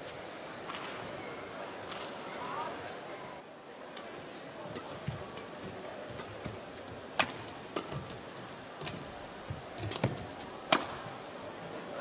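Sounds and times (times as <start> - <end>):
murmur of crowd: 0.0 - 12.0
racket hitting shuttlecock: 4.7 - 8.2, 8.8 - 11.2.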